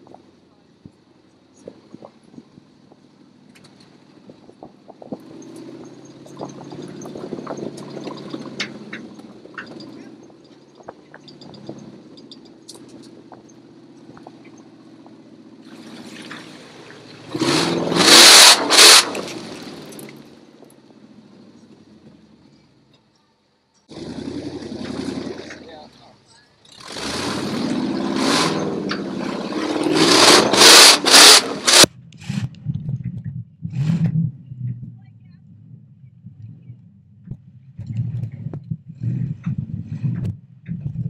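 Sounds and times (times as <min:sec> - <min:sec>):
truck engine revving: 0:01.6 - 0:22.9, 0:23.8 - 0:41.0
truck knocking over rough track: 0:01.7 - 0:23.1, 0:23.9 - 0:25.9, 0:26.6 - 0:35.0
tyres churning through mud: 0:03.4 - 0:22.4, 0:23.9 - 0:32.5.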